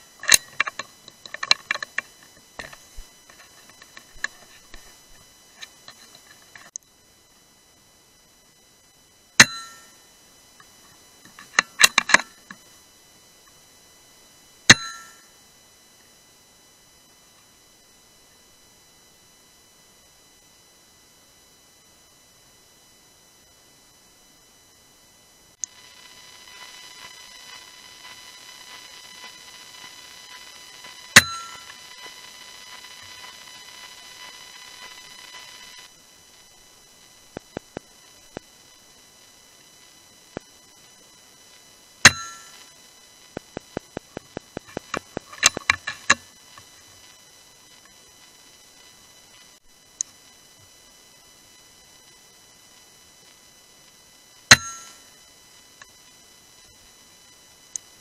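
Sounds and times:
thin electronic whine: 0:00.0 - 0:58.0
metallic clicks: 0:00.2 - 0:04.7, 0:11.3 - 0:12.6.

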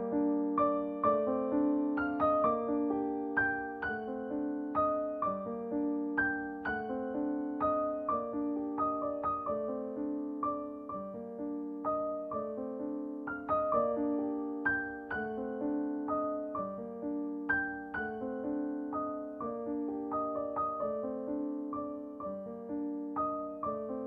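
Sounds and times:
soft piano music: 0:00.0 - 0:24.0.

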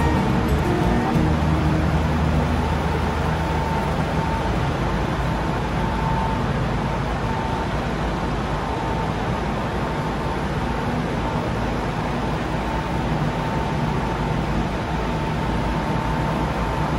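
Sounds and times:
machinery rumble and hiss: 0:00.0 - 0:16.9.

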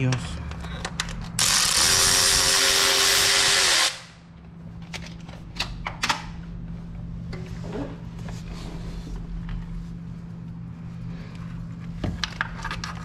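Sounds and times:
electric ratchet running: 0:01.4 - 0:04.2.

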